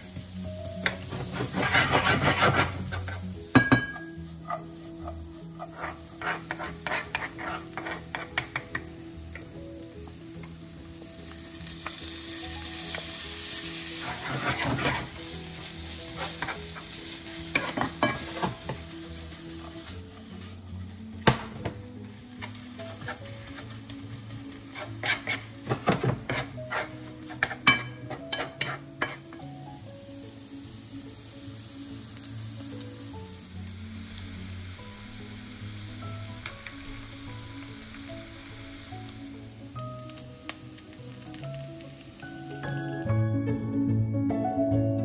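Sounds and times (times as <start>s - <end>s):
food sizzling in a frying pan: 0.0s - 43.6s
wooden spatula scraping a pan: 0.8s - 9.5s, 12.8s - 29.5s.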